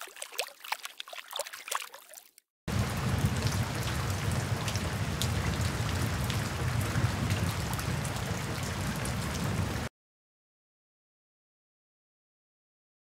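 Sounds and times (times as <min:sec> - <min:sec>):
low rumble: 0:02.7 - 0:09.9
rain-like water hiss: 0:02.7 - 0:09.9.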